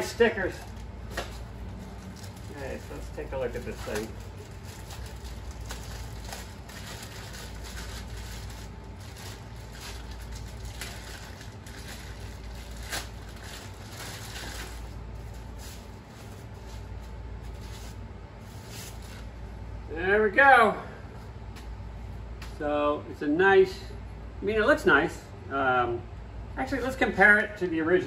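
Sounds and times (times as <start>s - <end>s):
steady low hum: 0.0s - 28.0s
plastic and paper crinkling: 0.4s - 19.4s.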